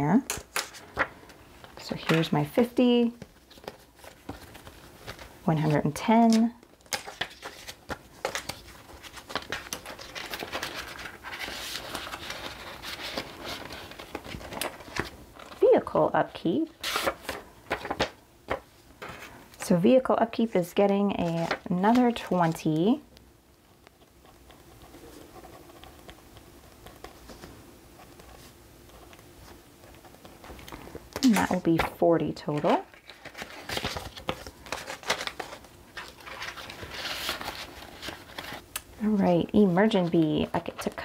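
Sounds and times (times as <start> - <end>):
paper and plastic sleeves rustling: 0.4 - 23.0, 23.6 - 41.0.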